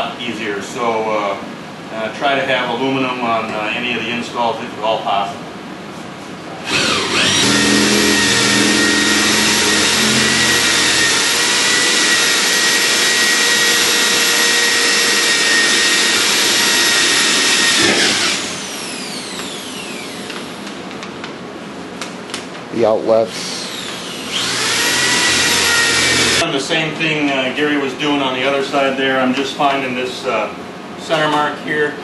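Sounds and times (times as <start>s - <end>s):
electric drill boring through metal: 6.6s - 20.6s, 23.5s - 26.4s.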